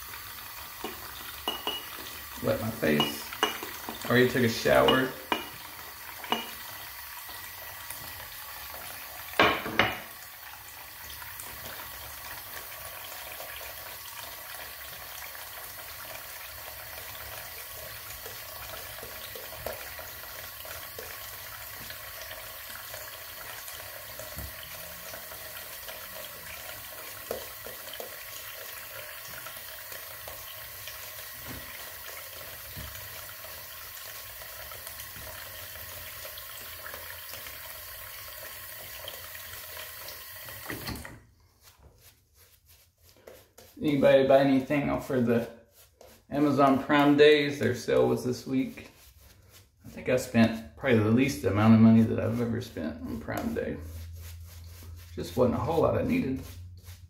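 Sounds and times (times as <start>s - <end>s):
shaving brush lathering stubble: 0.1s - 9.2s, 16.6s - 57.0s
tap running into sink: 0.7s - 7.0s, 7.8s - 10.2s, 18.2s - 41.2s.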